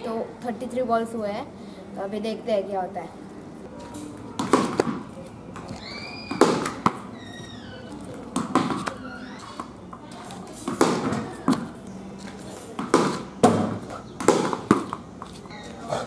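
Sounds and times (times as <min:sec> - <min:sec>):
ball bouncing on concrete: 0:04.3 - 0:15.8
ball cracking off wooden bat: 0:04.4 - 0:07.1, 0:08.3 - 0:09.0, 0:10.6 - 0:11.7, 0:12.8 - 0:15.0.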